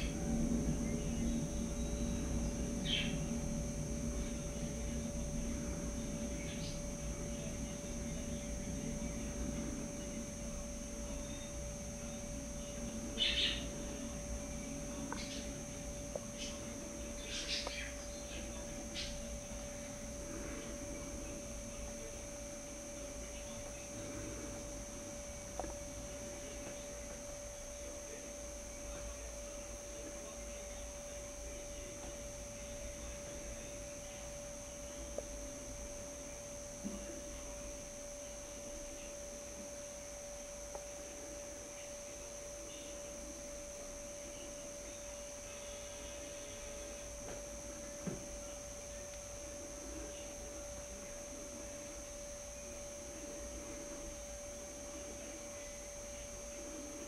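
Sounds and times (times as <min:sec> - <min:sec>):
faint high whine: 0:00.0 - 0:57.0
steady electrical hum: 0:00.0 - 0:57.0.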